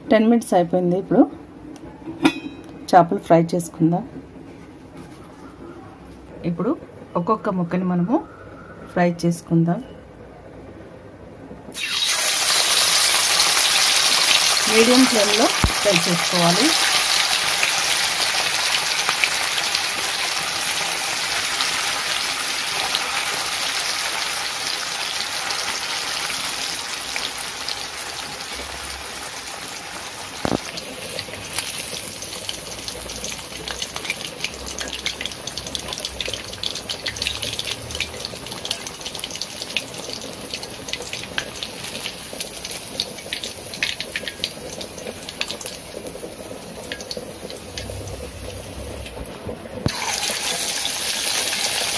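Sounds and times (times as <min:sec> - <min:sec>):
fish frying in hot oil: 0:11.7 - 0:51.9.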